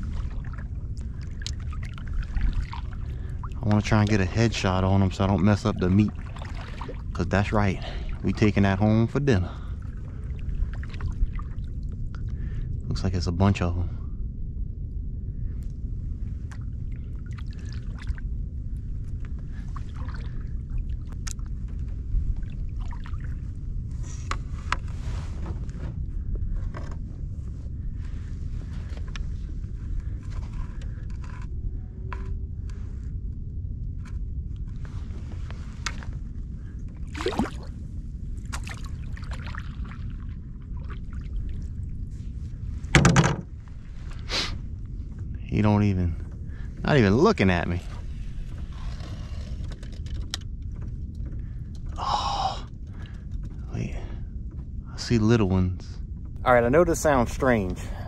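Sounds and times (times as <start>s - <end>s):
paddle splashing and dripping: 0.0s - 4.2s, 5.5s - 7.2s, 9.6s - 11.9s, 16.5s - 18.2s, 19.5s - 21.5s, 22.3s - 23.4s, 37.0s - 37.7s, 38.4s - 41.9s
low rumble: 0.0s - 58.0s
paddle knocking against hull: 42.9s - 43.6s.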